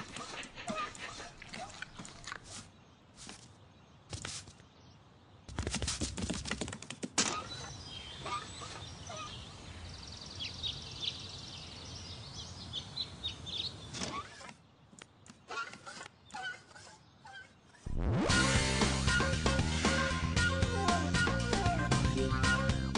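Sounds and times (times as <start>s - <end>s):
small birds chirping: 0.0s - 17.9s
faint outdoor background: 0.0s - 22.9s.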